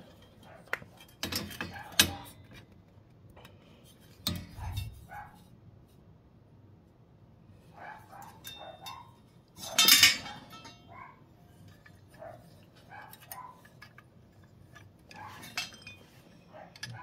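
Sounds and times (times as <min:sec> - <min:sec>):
small metal clicks and clinks: 0:11.8 - 0:17.0.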